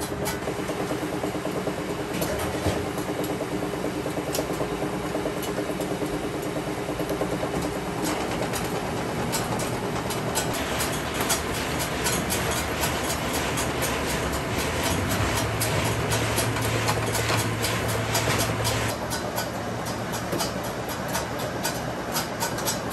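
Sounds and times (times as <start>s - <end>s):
machine hum: 0.0s - 20.0s
noodle machine rattling: 7.1s - 20.7s.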